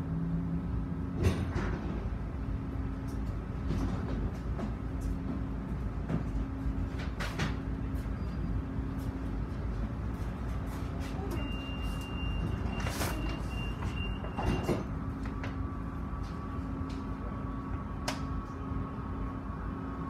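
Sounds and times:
tram equipment humming: 0.0 - 20.0.

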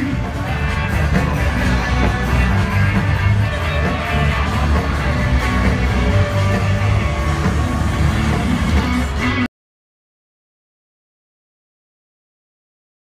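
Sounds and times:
loud rock music: 0.0 - 9.5.

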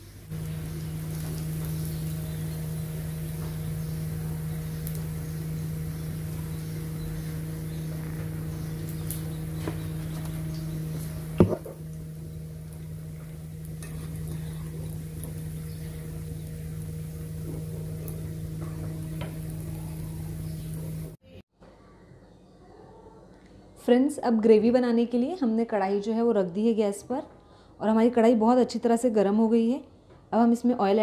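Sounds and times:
food deep-frying in hot oil: 0.0 - 21.2
low hum: 0.0 - 21.4.

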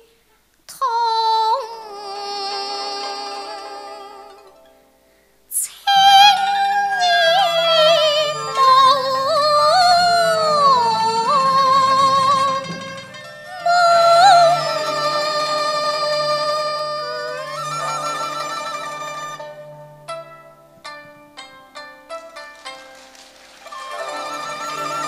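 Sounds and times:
opera singing with vibrato: 0.7 - 4.4, 5.5 - 19.4
low steady accompaniment: 7.0 - 25.0.

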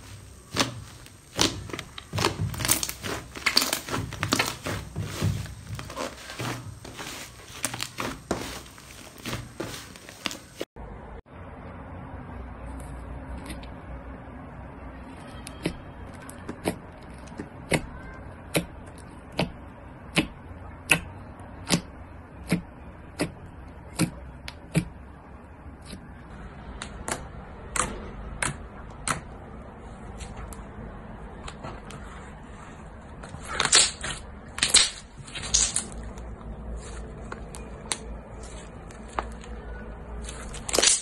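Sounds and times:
slime stretching with sticky crackling: 0.0 - 10.7.

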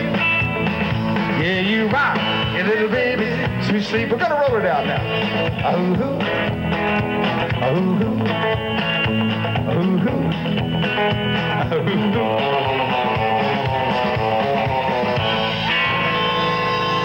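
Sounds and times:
electric guitar: 0.0 - 17.0
rock band playing: 0.0 - 17.0.

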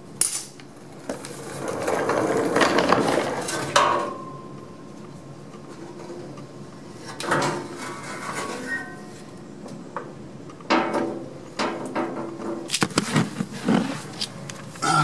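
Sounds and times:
metal plate scraping and clanking: 7.0 - 9.2.

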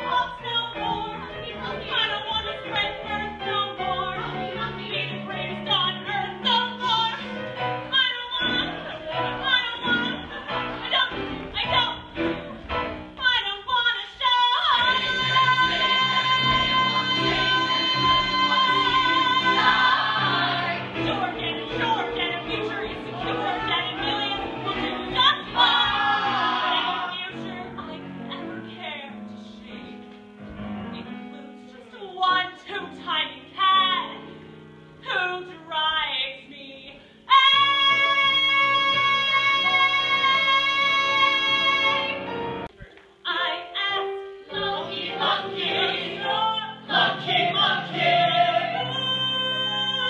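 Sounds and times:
musical accompaniment: 0.0 - 50.0
show tune singing: 13.2 - 27.8, 43.3 - 50.0.

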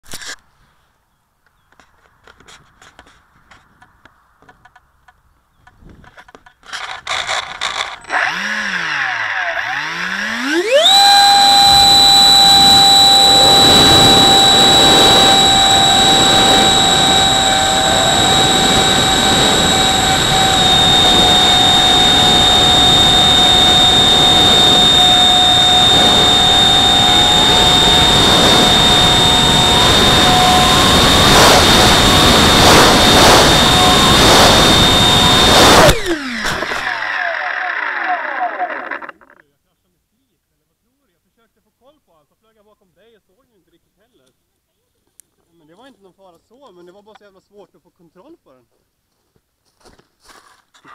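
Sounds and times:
electric ducted fan whine: 7.6 - 39.3
air rushing: 10.9 - 36.4.

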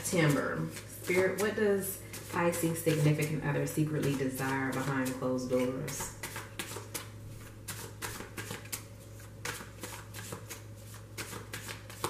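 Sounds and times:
cards being shuffled: 4.0 - 12.0.

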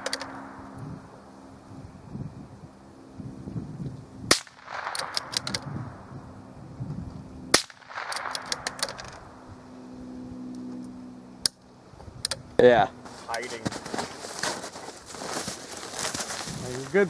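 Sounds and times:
rifle shots with echo: 4.3 - 5.4, 7.5 - 8.8.

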